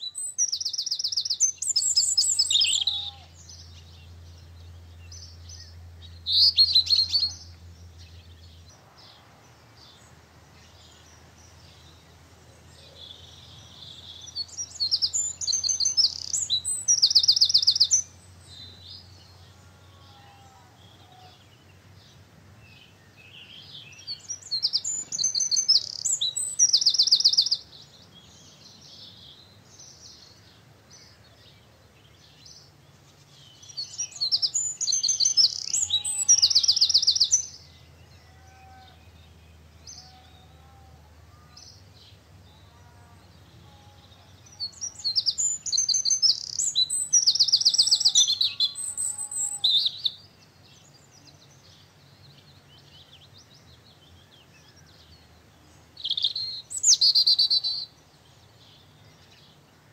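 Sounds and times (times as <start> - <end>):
faint bird chirps: 0.0 - 9.2
songbirds trilling: 0.0 - 59.9.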